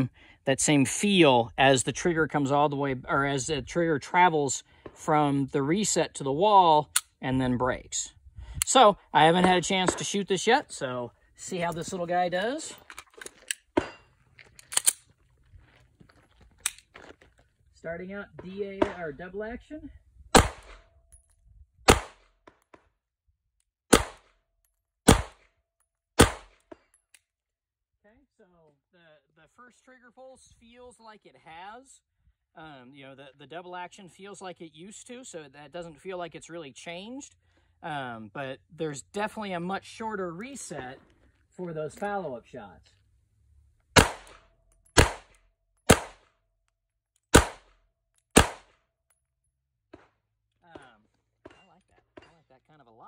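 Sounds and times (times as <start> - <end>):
pistol shots: 20.3 - 20.8, 21.9 - 22.3, 23.9 - 24.3, 25.1 - 25.4, 26.2 - 26.6, 44.0 - 44.4, 45.0 - 46.3, 47.3 - 48.8.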